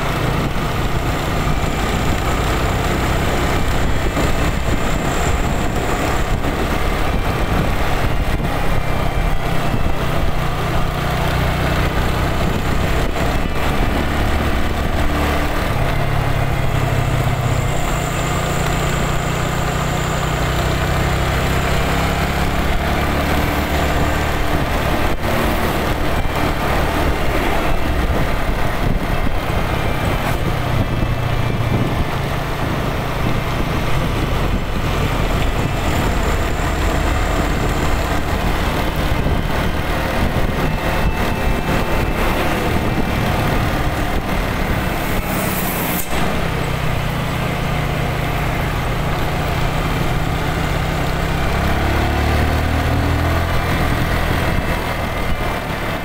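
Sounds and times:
motorcycle engine and road noise: 0.0s - 56.0s.

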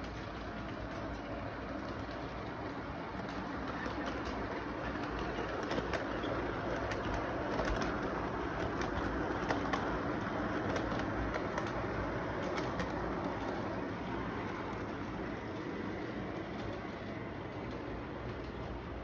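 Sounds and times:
toy train rolling rumble: 0.0s - 19.0s
wheels clicking on track: 0.0s - 19.0s.

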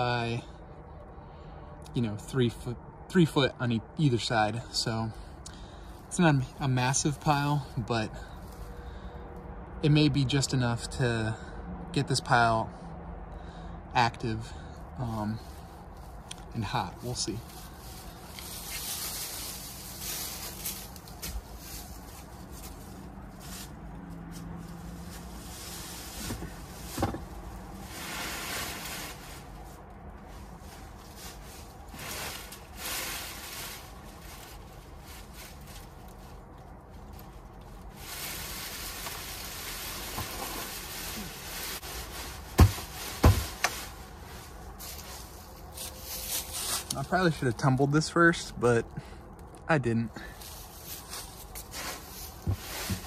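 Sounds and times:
dry leaves rustling: 14.6s - 49.2s, 50.2s - 53.0s.

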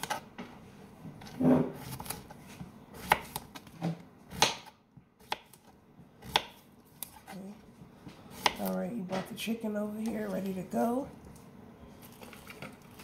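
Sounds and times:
knife chopping on cutting board: 1.2s - 7.3s, 8.0s - 8.7s.

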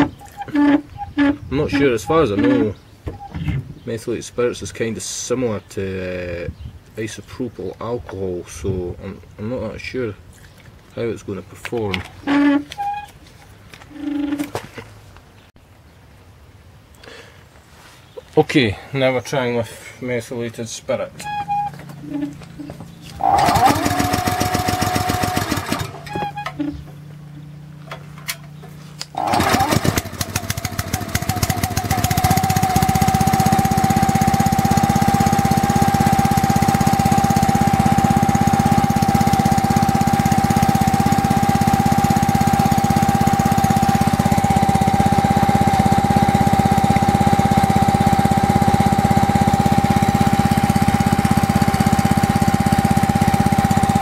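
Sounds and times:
engine whine: 20.9s - 54.0s
small petrol engine running: 21.3s - 26.4s, 29.1s - 54.0s.

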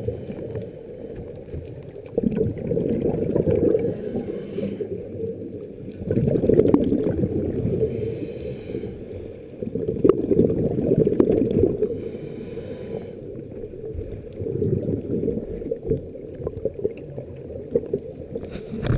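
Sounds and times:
exhaled air bubbling underwater: 0.0s - 18.9s
regulator inhale hiss: 3.6s - 5.0s, 7.8s - 9.4s, 11.8s - 13.4s.

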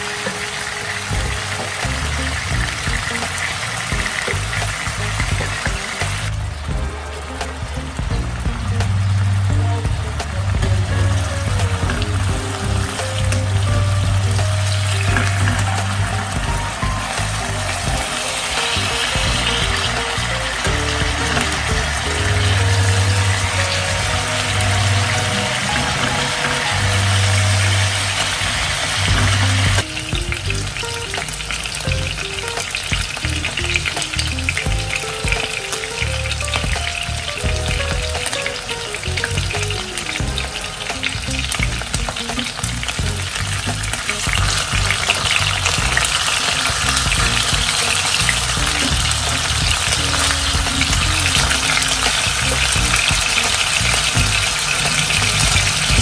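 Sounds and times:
chicken sizzling in a pan: 11.7s - 37.4s, 38.2s - 56.0s.

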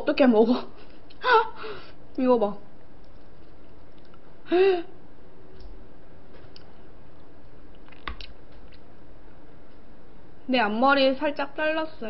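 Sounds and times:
quiet eating noises: 2.8s - 4.4s, 5.5s - 9.9s.

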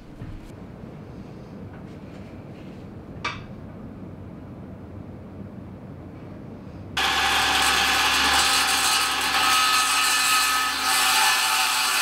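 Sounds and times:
power tool cutting wood: 7.0s - 12.0s.

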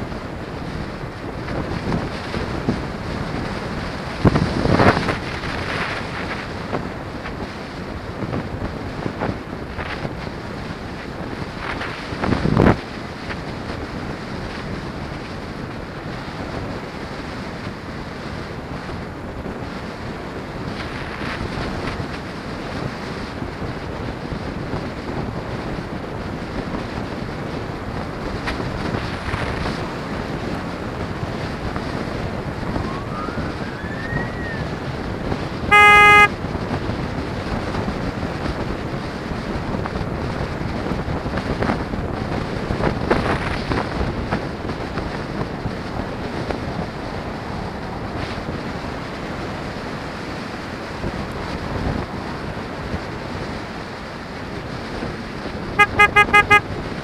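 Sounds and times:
road and traffic noise: 0.0s - 57.0s
wind rushing over microphone: 0.0s - 57.0s
car horn honk: 35.7s - 36.4s, 55.8s - 56.7s.

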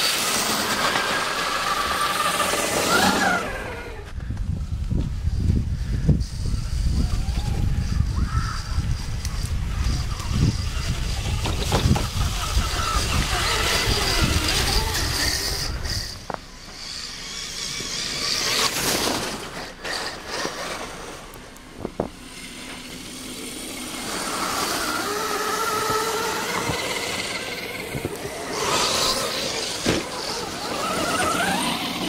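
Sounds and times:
electric motor and gear whine: 0.0s - 32.0s.

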